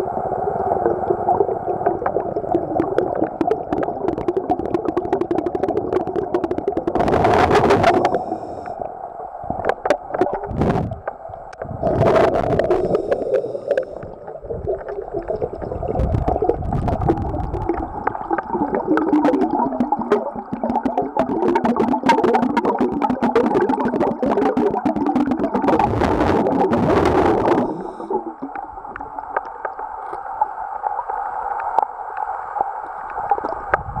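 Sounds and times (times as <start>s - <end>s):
water rushing: 0.0s - 8.8s, 9.4s - 34.0s
muffled underwater water noise: 0.0s - 34.0s.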